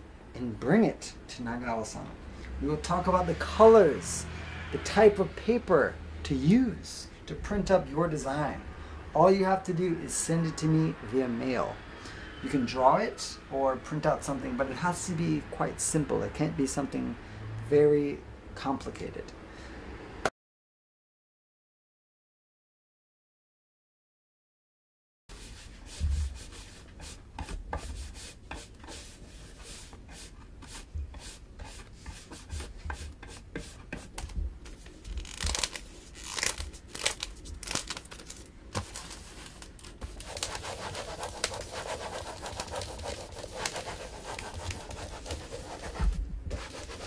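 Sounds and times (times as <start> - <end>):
knife scraping wood: 25.3 - 34.2, 40.0 - 47.0.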